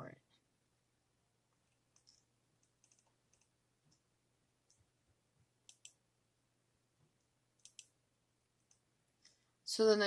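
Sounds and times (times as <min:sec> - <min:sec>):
computer mouse clicks: 0:01.6 - 0:04.8, 0:05.6 - 0:06.0, 0:07.6 - 0:08.0.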